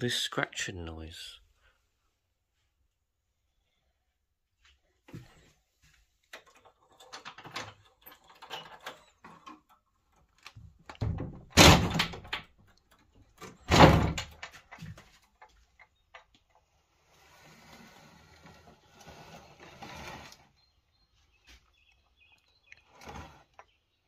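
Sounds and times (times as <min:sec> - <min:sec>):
door clicks and rustling: 0:06.3 - 0:16.3
door bumping: 0:11.0 - 0:12.5, 0:13.5 - 0:14.4.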